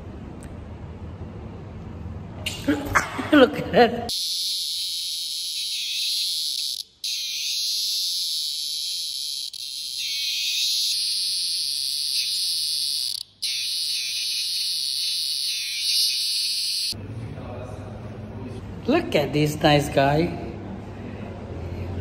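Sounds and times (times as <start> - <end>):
cicada buzzing: 4.1 - 17.0.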